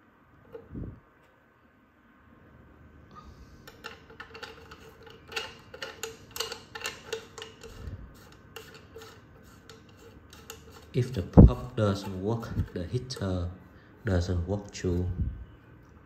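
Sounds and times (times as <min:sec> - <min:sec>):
rattling clicks and ticks: 0:03.6 - 0:11.2.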